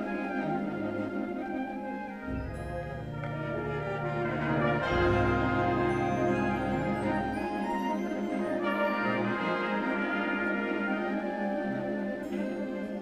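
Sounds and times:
low bass line: 0:02.3 - 0:07.4
concert band playing chords: 0:02.3 - 0:08.8.

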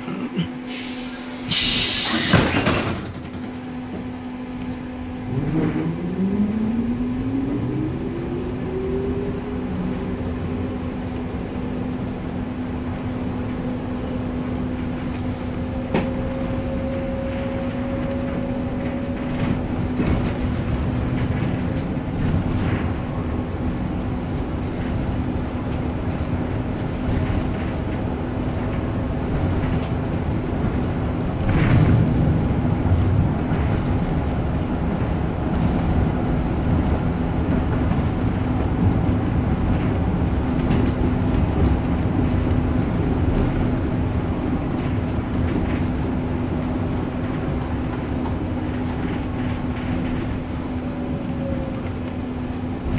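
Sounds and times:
tram motor whine rising: 0:00.8 - 0:52.9
tram clicks: 0:01.0 - 0:52.9.

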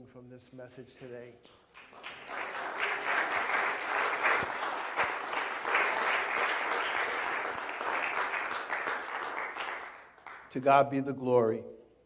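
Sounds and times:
congregation applauding: 0:01.4 - 0:10.6.

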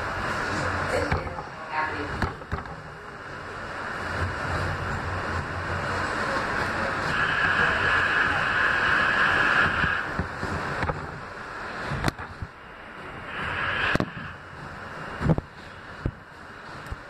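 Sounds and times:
squealing rail noise: 0:05.9 - 0:10.1.

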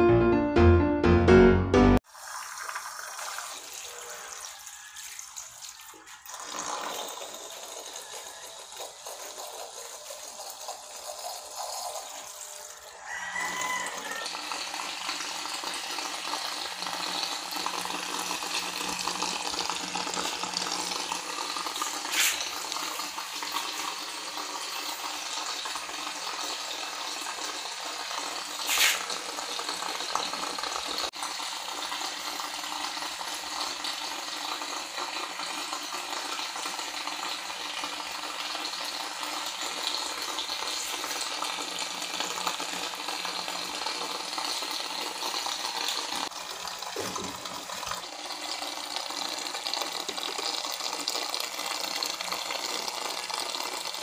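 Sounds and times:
short louder sounds: 0:00.0 - 0:02.0.

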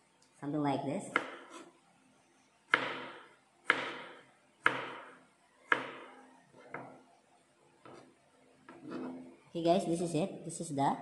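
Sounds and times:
knife chopping on plastic board: 0:01.1 - 0:01.7, 0:02.7 - 0:07.0.

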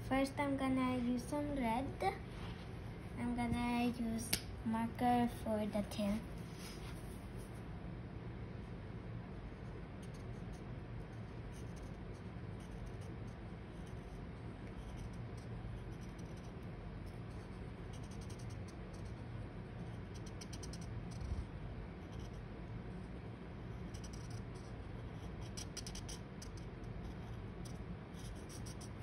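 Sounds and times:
low room hum: 0:00.0 - 0:29.0
marker scratching on paper: 0:10.0 - 0:22.5, 0:23.7 - 0:29.0.

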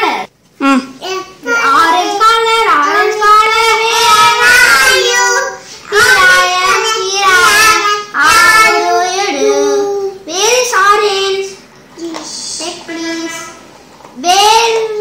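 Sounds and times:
young child singing: 0:01.2 - 0:10.3.

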